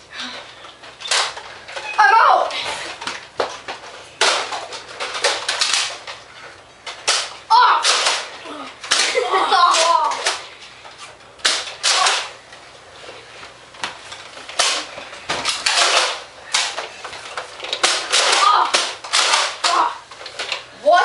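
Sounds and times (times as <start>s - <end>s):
foam dart blasters firing: 7.0s - 10.4s, 11.4s - 12.4s.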